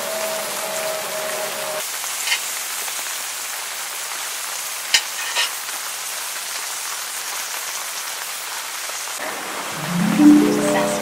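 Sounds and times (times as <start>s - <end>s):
meat sizzling on a grill pan: 1.8s - 9.2s.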